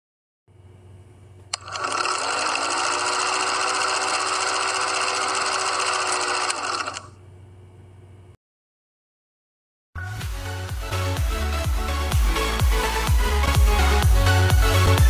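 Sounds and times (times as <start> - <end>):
film projector rattling: 1.5 - 7.1.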